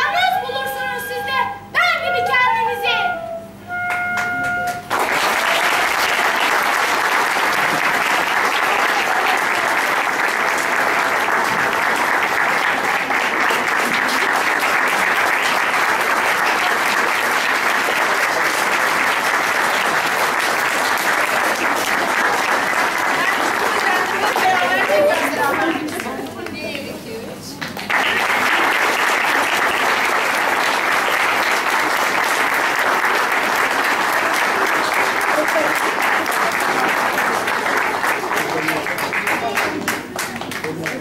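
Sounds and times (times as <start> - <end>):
held tone: 1.0 - 5.1
audience applause: 3.8 - 26.8, 27.6 - 41.0.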